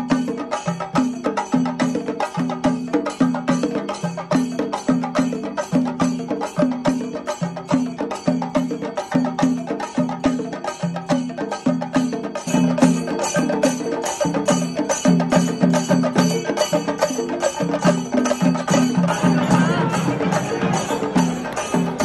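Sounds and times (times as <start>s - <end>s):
percussive knocking beat: 0.0s - 22.0s.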